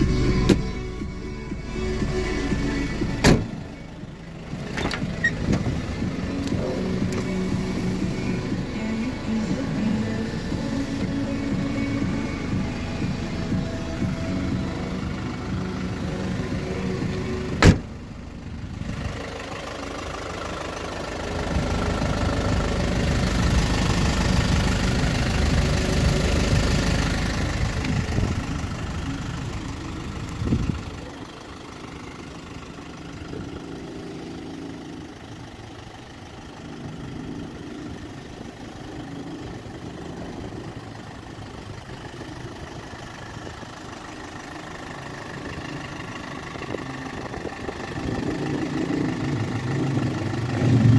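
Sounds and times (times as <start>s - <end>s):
diesel engine idling: 0.0s - 50.9s
door slamming shut: 3.2s - 3.5s, 17.6s - 17.9s.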